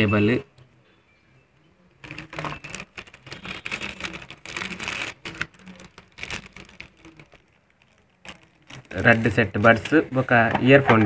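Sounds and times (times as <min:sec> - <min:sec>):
plastic bag crinkling: 0:02.0 - 0:10.4.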